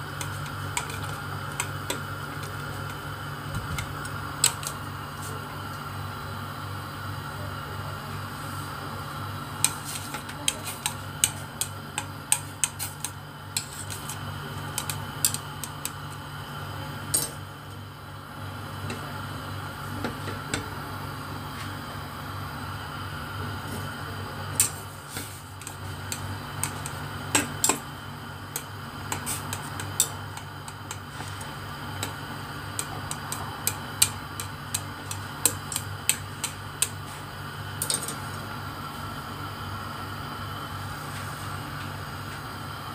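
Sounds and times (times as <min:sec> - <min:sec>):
water boiling with ticks and pops: 0:00.0 - 0:05.9, 0:09.4 - 0:19.0, 0:24.5 - 0:38.5.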